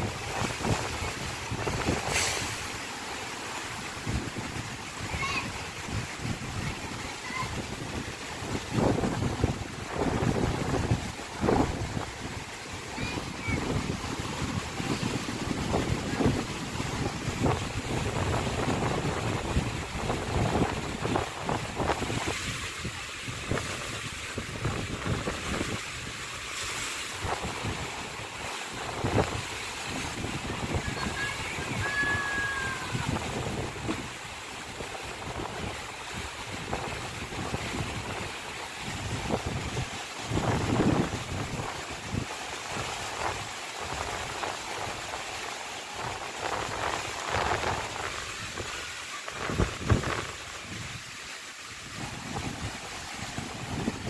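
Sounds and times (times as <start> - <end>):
wind buffeting microphone: 0.0 - 2.2, 3.8 - 26.3, 27.1 - 45.2, 46.0 - 51.2, 51.8 - 54.0
strong wind: 0.0 - 2.8, 3.6 - 54.0
rough sea surf washing: 0.0 - 54.0.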